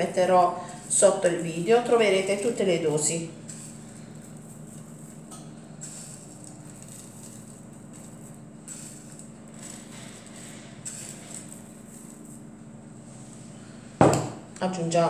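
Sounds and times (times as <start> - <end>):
rice grains pattering: 0.0 - 12.8.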